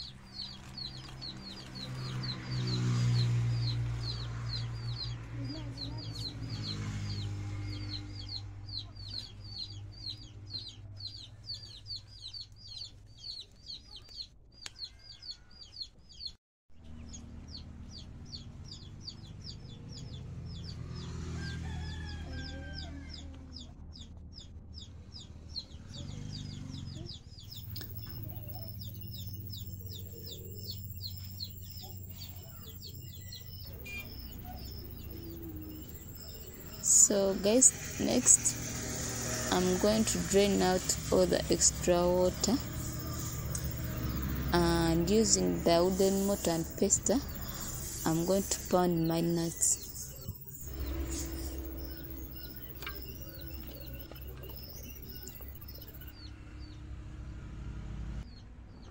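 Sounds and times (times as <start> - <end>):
steady low rumble: 27.5 - 56.2.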